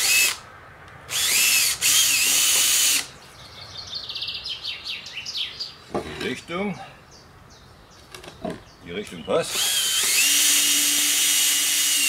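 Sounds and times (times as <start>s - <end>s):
cordless drill whining: 0.0s - 0.4s, 1.1s - 3.1s, 9.5s - 12.0s
small birds chirping: 3.1s - 9.8s.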